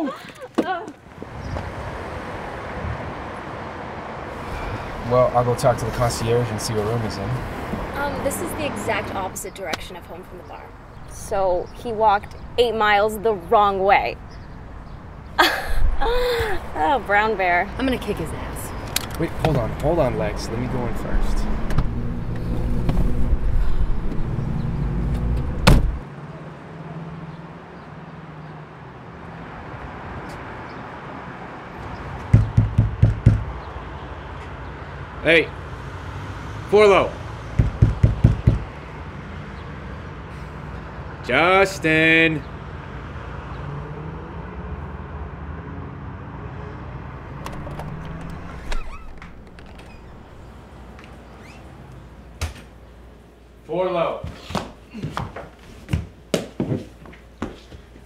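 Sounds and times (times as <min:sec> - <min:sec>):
road traffic: 0:00.0 - 0:58.0
car door slamming: 0:25.2 - 0:26.0, 0:37.6 - 0:38.7
short squeak: 0:48.3 - 0:50.4, 0:51.4 - 0:51.8.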